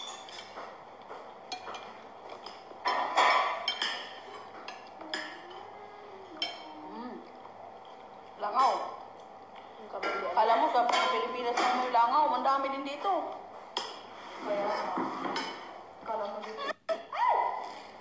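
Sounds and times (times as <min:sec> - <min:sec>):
spoons clinking on ceramic plates: 0:00.0 - 0:05.7, 0:06.3 - 0:06.8.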